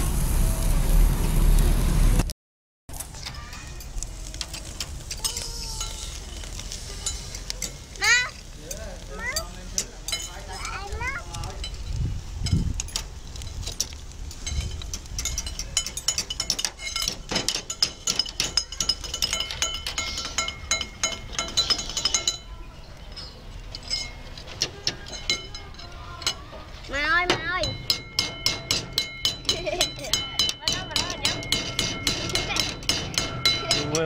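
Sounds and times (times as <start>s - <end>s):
child's voice: 3.1s - 4.3s, 5.2s - 7.2s, 8.0s - 8.4s, 9.1s - 9.5s, 10.5s - 11.4s, 24.7s - 27.8s, 32.2s - 32.8s
tongs clacking on snail shells: 3.5s - 26.5s, 27.6s - 34.0s
spoons clinking on plates: 7.0s - 13.0s, 14.3s - 26.5s, 27.4s - 34.0s.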